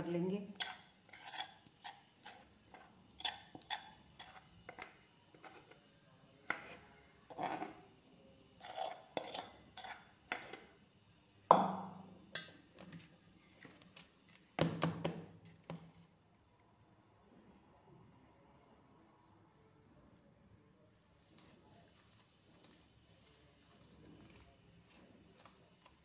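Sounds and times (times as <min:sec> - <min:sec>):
spoon scraping a steel plate: 0:00.6 - 0:05.8, 0:06.5 - 0:07.8, 0:08.6 - 0:10.7, 0:12.3 - 0:13.1.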